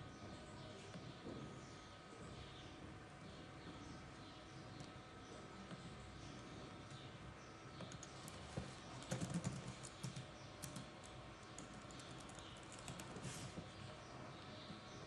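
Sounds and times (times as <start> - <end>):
keyboard typing: 7.8 - 13.6.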